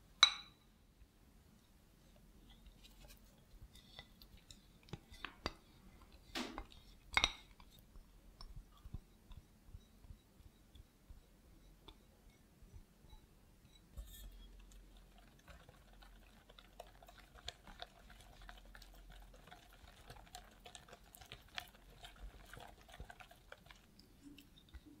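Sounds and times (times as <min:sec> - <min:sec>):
utensils tapping glass bowl: 0:00.2 - 0:00.6, 0:06.6 - 0:07.6.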